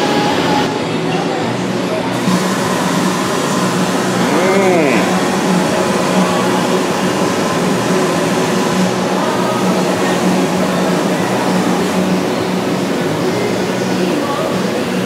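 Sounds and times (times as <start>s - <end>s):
milling machine cutting: 2.2s - 8.8s.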